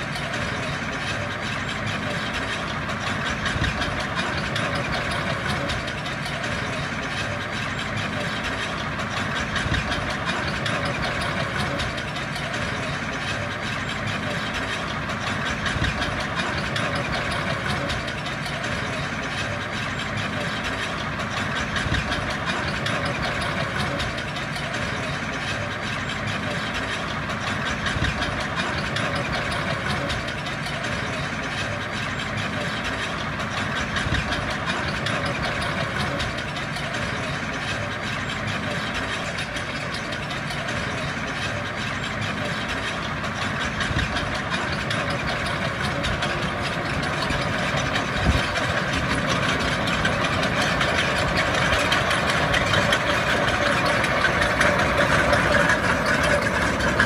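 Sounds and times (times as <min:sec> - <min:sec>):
heavy machinery diesel engine: 0:00.0 - 0:57.0.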